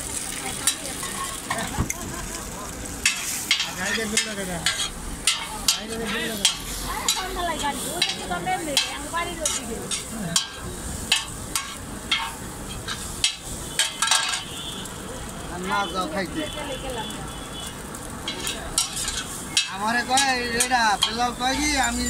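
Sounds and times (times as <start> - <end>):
food sizzling in metal pan: 0.0 - 22.0
metal spatula scraping pan: 3.0 - 14.5, 18.2 - 22.0.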